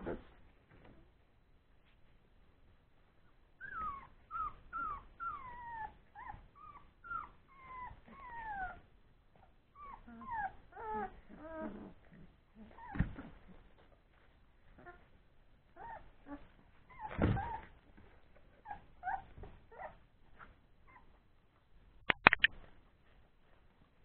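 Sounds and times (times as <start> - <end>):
puppies whining: 3.6 - 13.8, 15.7 - 20.1.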